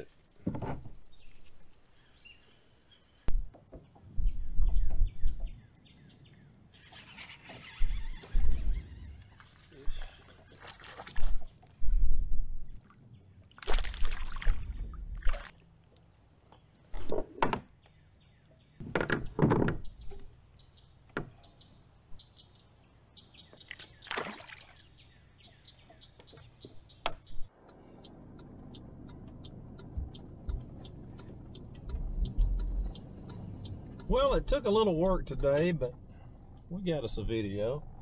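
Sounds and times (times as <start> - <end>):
light ticking: 27.6 - 36.0
low thumps: 29.1 - 35.5.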